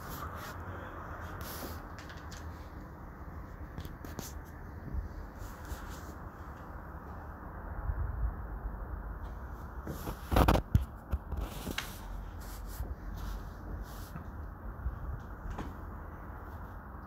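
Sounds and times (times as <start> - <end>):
rustling: 0.0 - 6.8, 9.3 - 14.4
low steady rumble: 0.0 - 17.0.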